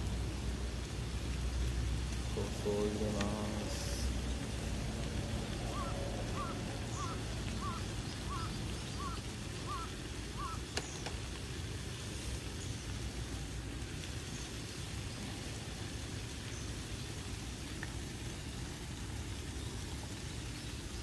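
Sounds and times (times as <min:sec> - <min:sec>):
camp stove burning: 0:00.0 - 0:07.6, 0:09.4 - 0:16.6
bird call: 0:05.7 - 0:11.2.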